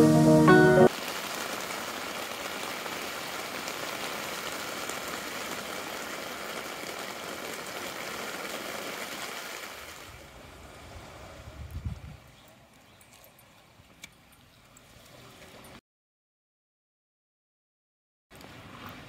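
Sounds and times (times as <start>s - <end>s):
rain on a tent: 0.0s - 12.9s, 18.3s - 19.0s.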